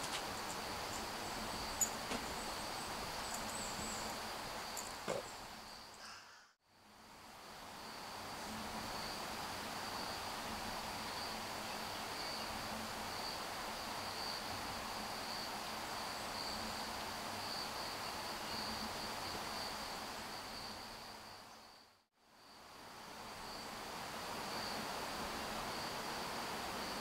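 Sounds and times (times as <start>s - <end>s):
high-pitched insect chorus: 0.0s - 6.2s.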